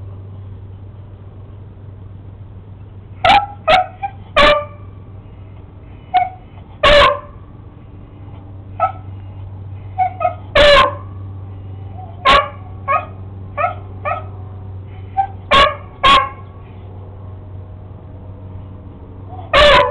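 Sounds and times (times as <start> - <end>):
dog barking: 3.2 - 4.8, 6.2 - 7.4, 8.8 - 9.1, 10.0 - 11.1, 12.2 - 14.3, 15.2 - 16.4, 19.4 - 19.9.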